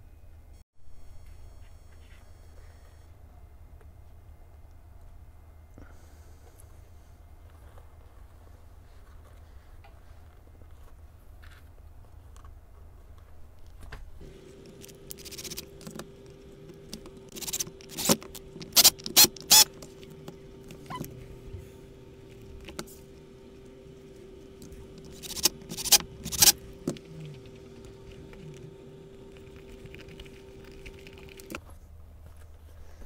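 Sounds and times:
steady hum: 14.1s - 32.2s.

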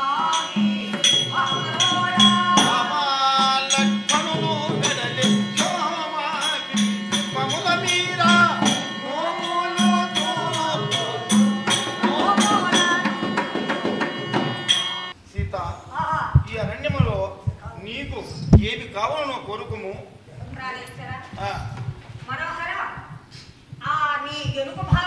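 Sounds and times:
folk singing: 0.0s - 15.1s
sharp rhythmic clicks: 0.0s - 15.2s
low drum pulse: 6.8s - 14.8s.

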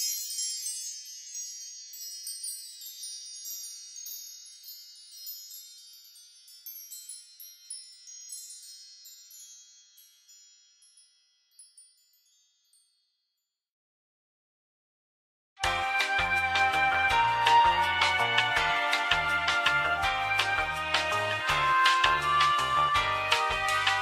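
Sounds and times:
wind chimes tinkling: 0.0s - 13.6s.

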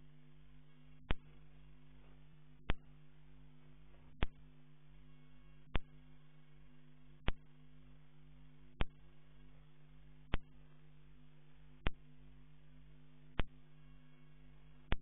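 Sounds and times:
electrical hum: 0.0s - 15.0s
sharp clicks: 4.1s - 4.4s, 7.2s - 7.5s, 8.8s - 9.0s, 10.3s - 10.5s, 13.3s - 13.6s.

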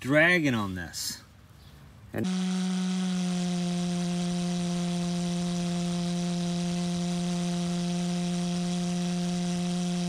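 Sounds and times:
pulse jet engine buzzing hum: 2.2s - 10.0s.

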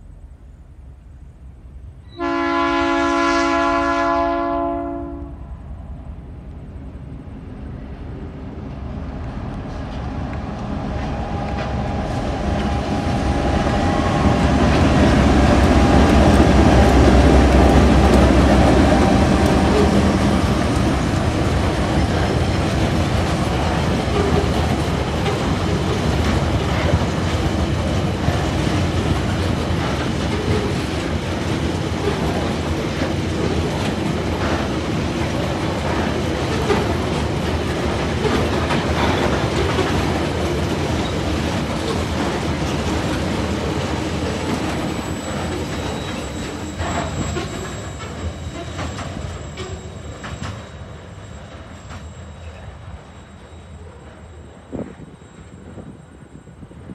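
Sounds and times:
diesel locomotive engines: 0.0s - 56.9s
wheels clacking over rail joints: 8.7s - 52.3s
wagons rumbling: 8.8s - 50.5s.

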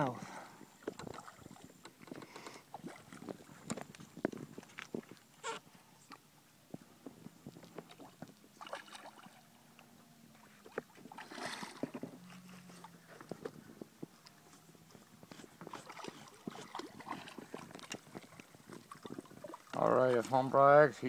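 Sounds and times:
fish splashing in water: 7.6s - 9.7s, 10.4s - 12.1s, 15.0s - 19.8s.

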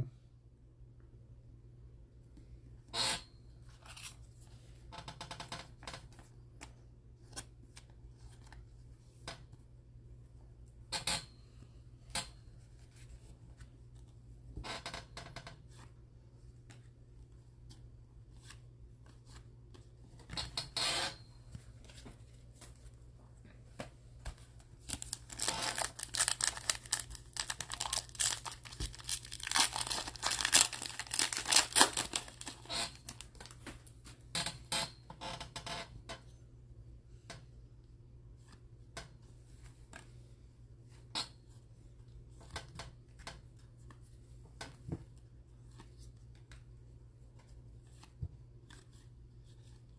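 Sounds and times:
cards shuffling: 24.2s - 33.8s
wrapper tearing and crinkling: 24.8s - 33.6s.

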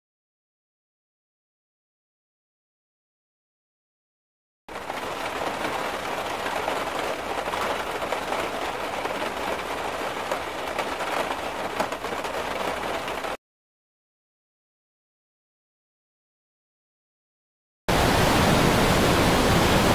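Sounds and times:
rainwater pouring and splashing on floor: 4.7s - 13.4s.

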